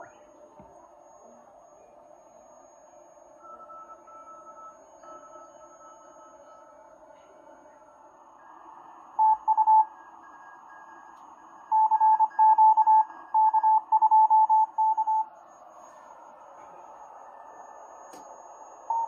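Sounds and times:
morse code beeps: 0:03.3 - 0:06.8, 0:09.2 - 0:11.0, 0:11.7 - 0:15.3, 0:18.6 - 0:19.0.

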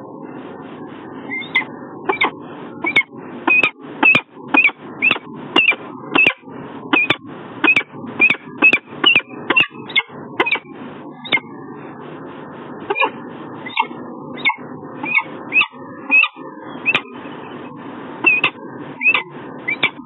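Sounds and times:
low background rumble: 0:00.0 - 0:20.0
falcon calling: 0:01.3 - 0:06.4, 0:07.0 - 0:11.4, 0:12.9 - 0:17.1, 0:18.2 - 0:20.0.

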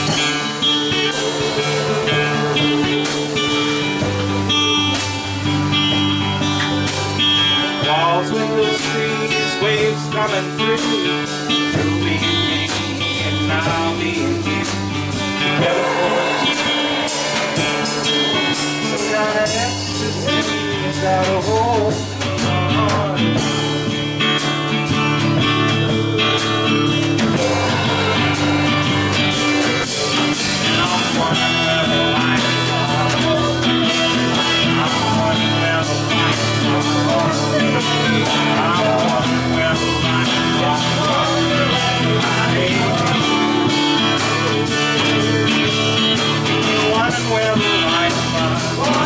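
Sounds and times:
lead line with bending notes: 0:00.0 - 0:06.4, 0:14.5 - 0:20.8, 0:25.7 - 0:31.6
acoustic guitar: 0:00.0 - 0:49.0
drum kit playing: 0:00.0 - 0:49.0.

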